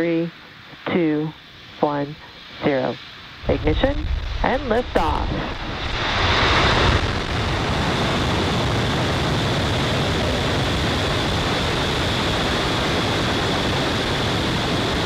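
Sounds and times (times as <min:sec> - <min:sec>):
loud rocket roar: 0:03.4 - 0:15.0.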